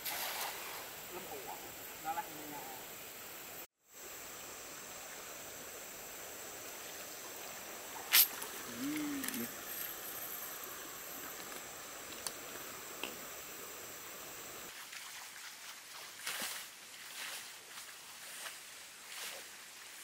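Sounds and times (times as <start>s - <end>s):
river water running over gravel: 4.0s - 20.0s
low voice-like hum: 8.6s - 9.6s.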